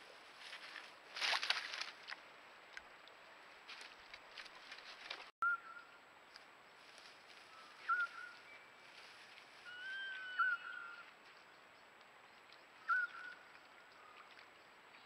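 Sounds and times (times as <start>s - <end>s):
rustling in grass: 0.0s - 2.2s, 3.6s - 5.3s, 6.3s - 11.4s
thin whistled bird calls: 5.4s - 6.0s, 7.5s - 8.9s, 9.6s - 11.8s, 12.4s - 14.4s.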